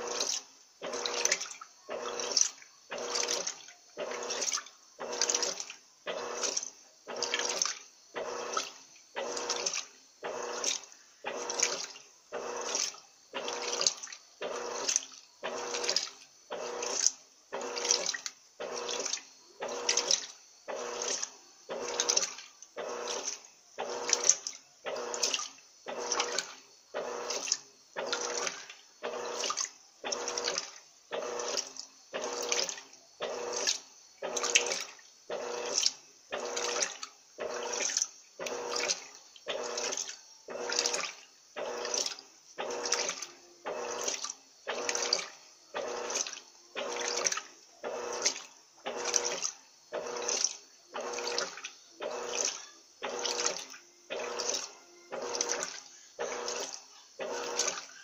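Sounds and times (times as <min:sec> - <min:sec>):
washing machine agitator sloshing: 0:00.0 - 0:58.0
washing machine hum: 0:00.0 - 0:58.0.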